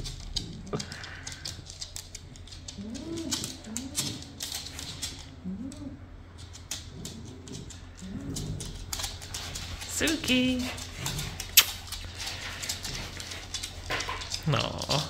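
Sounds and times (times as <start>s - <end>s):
dogs whining: 0.0s - 10.0s
claws clicking on wooden floor: 0.0s - 15.0s.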